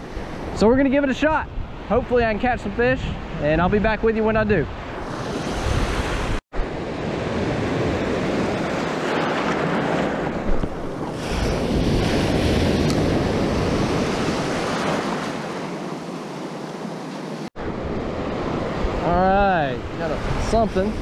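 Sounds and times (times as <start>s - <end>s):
wind rumbling on microphone: 0.0s - 17.0s
surf waves breaking: 4.5s - 21.0s.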